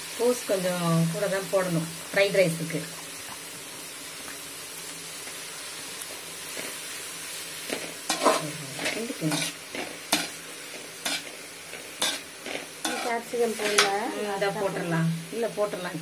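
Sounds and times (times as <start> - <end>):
vegetables sizzling in oil: 0.0 - 16.0
metal ladle scraping pan: 8.0 - 10.4, 11.0 - 11.4, 12.0 - 14.9.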